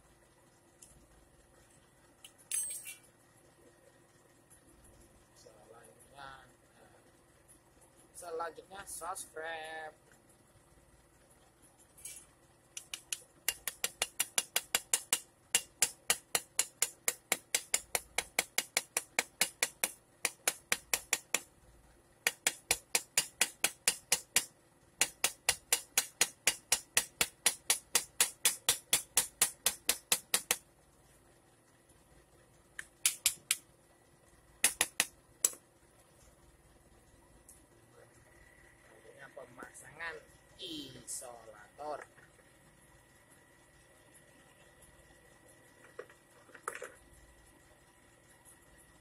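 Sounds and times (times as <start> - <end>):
small hammer tapping metal: 2.2 - 3.0, 12.8 - 21.5, 22.2 - 30.6, 32.8 - 33.6, 34.6 - 35.6.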